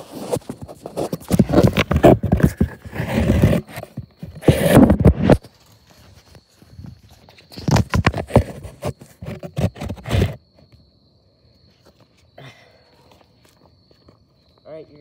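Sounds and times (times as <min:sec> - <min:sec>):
camera scraping on asphalt: 0:00.0 - 0:10.5.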